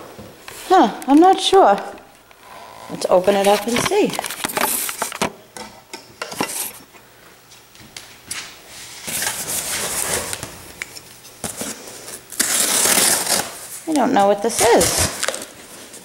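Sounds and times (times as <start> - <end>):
cardboard rustling and scraping: 3.0 - 5.2, 8.8 - 10.6.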